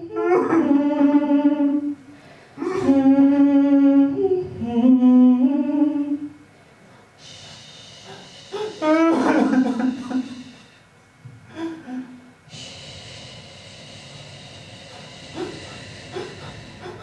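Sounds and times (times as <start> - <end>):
woman singing long notes: 0.0 - 2.0, 2.6 - 6.4, 7.2 - 10.8, 12.5 - 17.0
faint steady hiss: 4.1 - 17.0.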